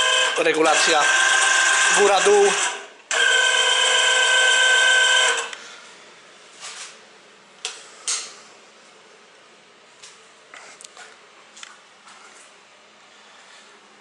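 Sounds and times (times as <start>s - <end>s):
drill motor whining: 0.0s - 5.6s.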